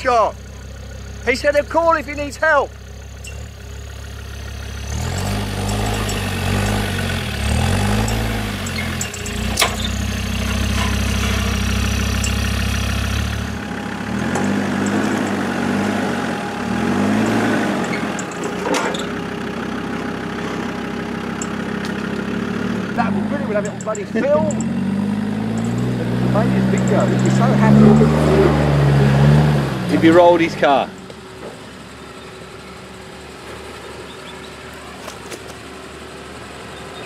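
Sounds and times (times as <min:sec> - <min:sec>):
engine revving: 0:00.0 - 0:32.9.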